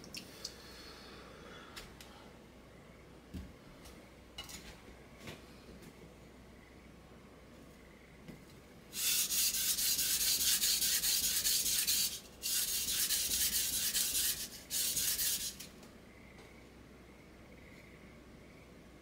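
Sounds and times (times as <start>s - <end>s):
knife scraping on whetstone: 9.0s - 15.7s.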